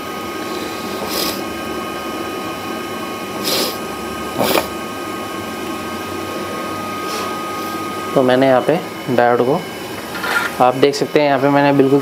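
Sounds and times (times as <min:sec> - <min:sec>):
soldering iron sizzling: 0:00.0 - 0:12.0
whir of workshop equipment: 0:00.0 - 0:12.0.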